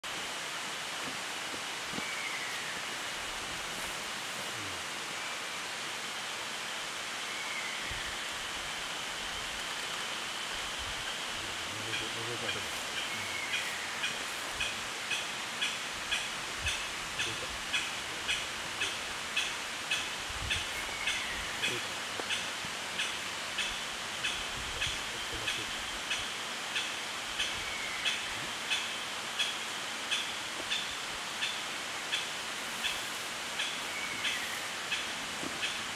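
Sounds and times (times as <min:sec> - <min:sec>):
rushing forest noise: 0:00.0 - 0:35.9
woodpecker calling: 0:11.6 - 0:35.9.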